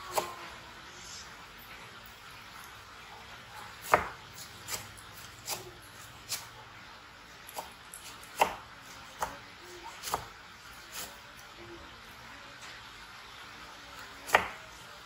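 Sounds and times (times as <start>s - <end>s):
knife chopping on wooden board: 3.8s - 6.5s, 7.5s - 9.4s, 14.3s - 14.6s.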